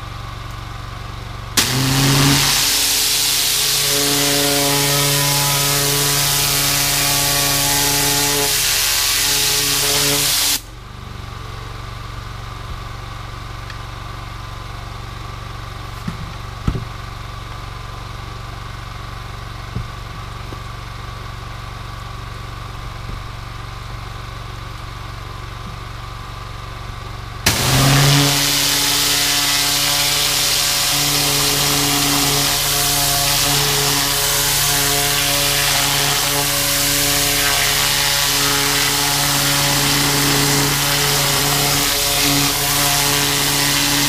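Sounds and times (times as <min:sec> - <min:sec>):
pressure washer engine running: 0:00.0 - 0:13.6, 0:14.3 - 0:44.0
spray jet hissing: 0:01.6 - 0:10.6, 0:27.5 - 0:44.0.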